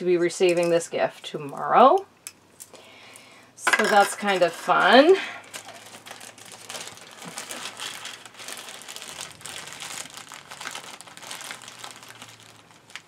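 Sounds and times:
plastic bag crinkling: 3.9 - 13.0.

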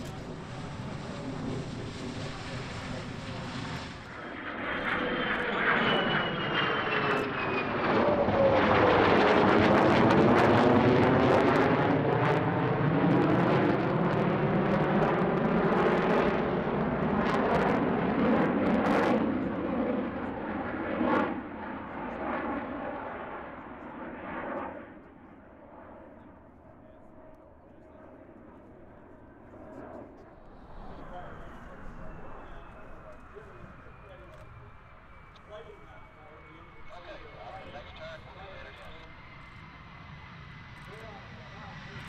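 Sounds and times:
whining jet tones dropping in pitch: 0.0 - 9.2, 30.4 - 42.0
jet roar passing overhead: 0.0 - 26.6, 28.0 - 42.0.

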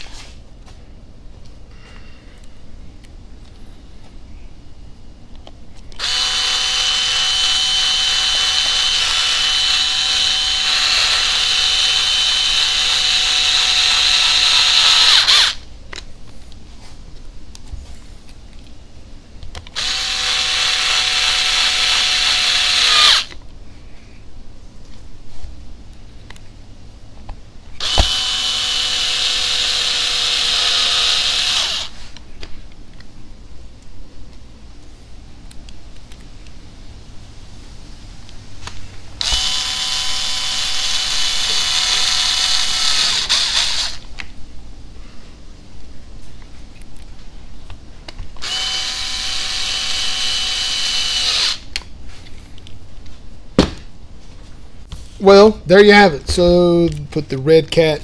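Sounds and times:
power screwdriver motor whine: 6.0 - 15.6, 19.7 - 23.4, 27.8 - 32.1, 39.2 - 44.0, 48.4 - 51.7
sharp knock: 53.6 - 53.8.

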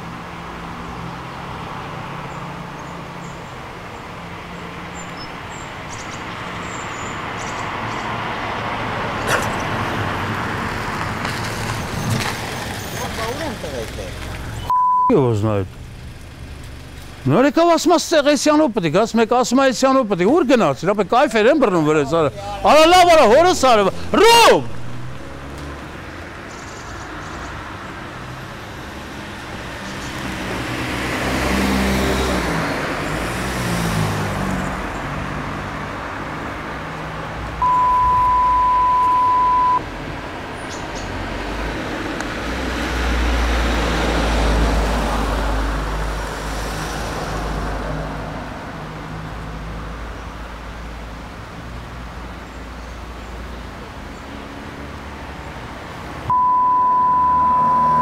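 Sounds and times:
road traffic: 0.0 - 58.0
censor bleep: 14.7 - 15.2, 37.6 - 39.8, 56.3 - 58.0.

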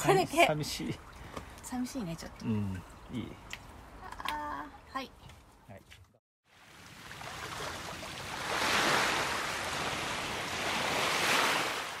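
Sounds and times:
ocean waves washing in: 6.5 - 12.0.

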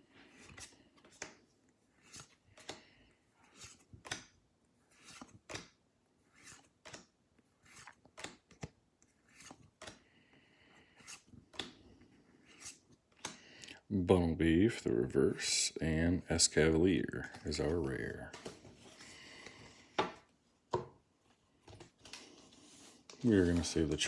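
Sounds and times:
cards flipped by hand: 0.2 - 10.2, 10.8 - 13.5, 21.5 - 24.0.

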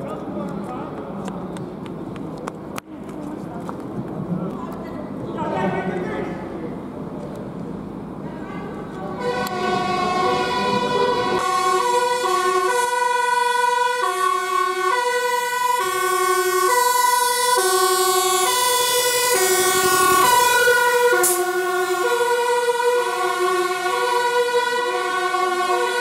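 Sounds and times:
fire engine two-tone siren: 9.1 - 26.0.

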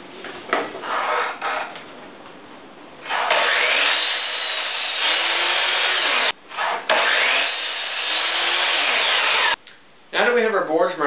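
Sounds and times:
mitre saw cutting wood: 3.1 - 9.6.

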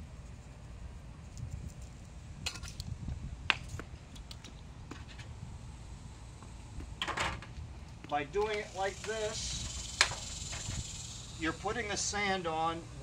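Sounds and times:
low steady rumble: 0.0 - 13.0.

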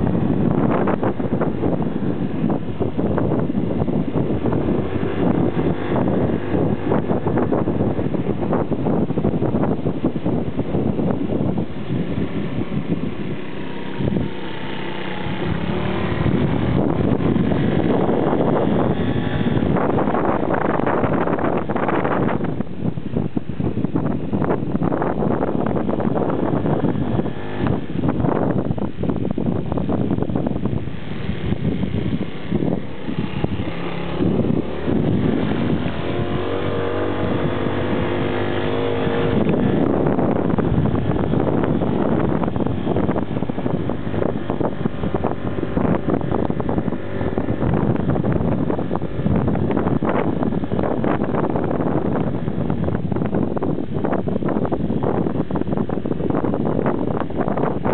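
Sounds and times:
small motorbike engine running: 0.0 - 22.6, 24.8 - 53.6
tyre and road noise: 0.0 - 57.9
wind buffeting microphone: 0.0 - 57.9.

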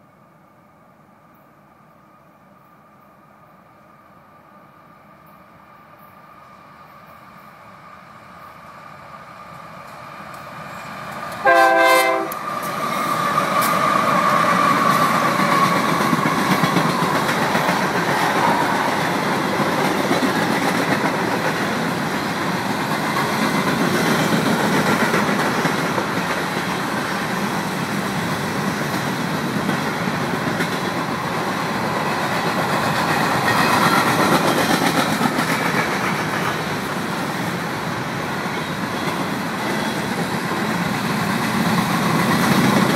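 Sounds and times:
train wheels on rails: 1.2 - 42.9
diesel locomotive horn blast: 11.4 - 12.4.

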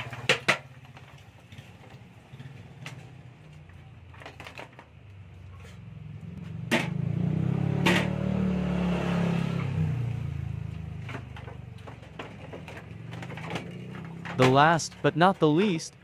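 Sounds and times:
sharp knocks: 6.6 - 7.1.

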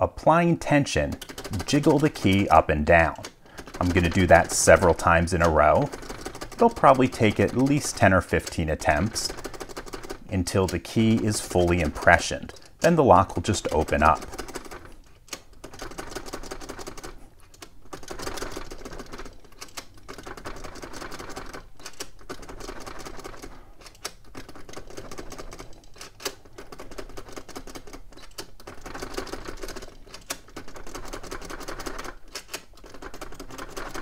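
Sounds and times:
key rattling in a lock: 23.8 - 34.0.

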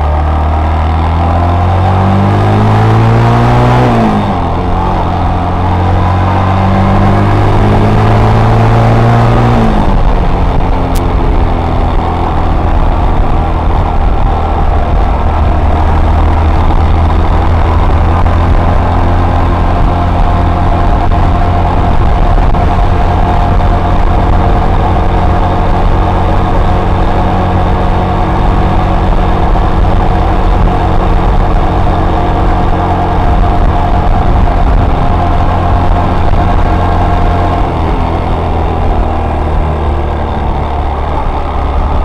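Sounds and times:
motorcycle engine running: 0.0 - 42.0.

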